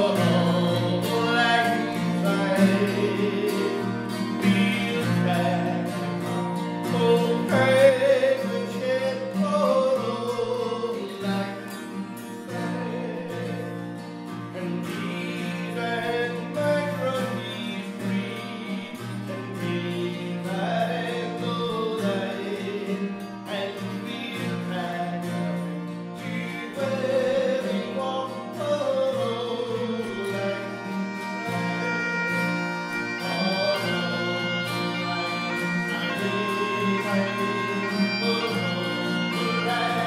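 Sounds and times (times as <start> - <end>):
bagpipes: 0.0 - 9.4, 28.5 - 40.0
acoustic guitars: 0.0 - 40.0
man singing: 0.0 - 40.0.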